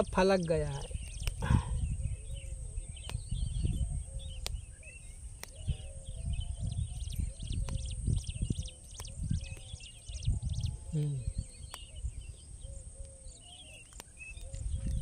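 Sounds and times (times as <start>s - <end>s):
small birds chirping: 0.0s - 15.0s
sharp clicks: 0.9s - 1.4s, 13.7s - 15.0s.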